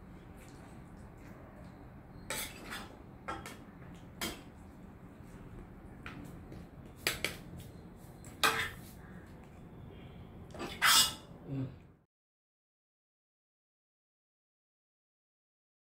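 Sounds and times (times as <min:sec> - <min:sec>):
metal ladle scraping and clinking: 0:02.2 - 0:03.5, 0:08.2 - 0:08.9, 0:10.6 - 0:11.3.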